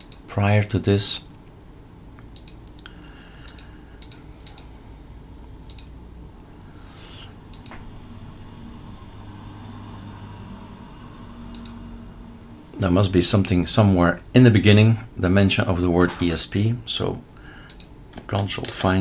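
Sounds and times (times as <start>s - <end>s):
faint low hum: 0.0s - 19.0s
computer clicks: 2.2s - 4.7s, 5.7s - 5.9s, 7.5s - 7.8s, 11.5s - 11.8s, 17.6s - 18.9s.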